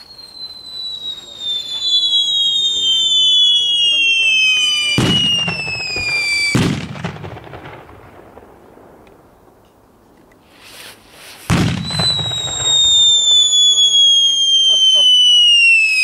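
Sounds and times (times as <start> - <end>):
firework whistle falling in pitch: 0.0 - 6.7, 11.5 - 16.0
firework burst: 0.0 - 8.7, 10.5 - 16.0.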